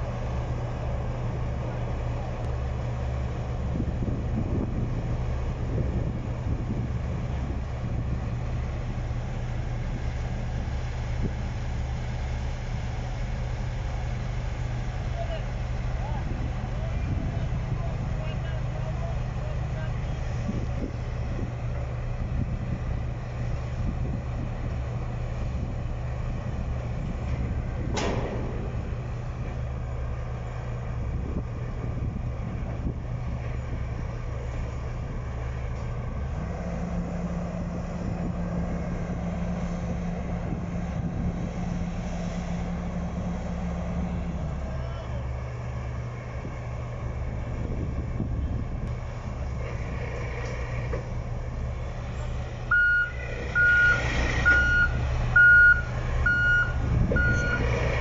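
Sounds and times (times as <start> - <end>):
diesel engine rumbling: 0.0 - 58.0.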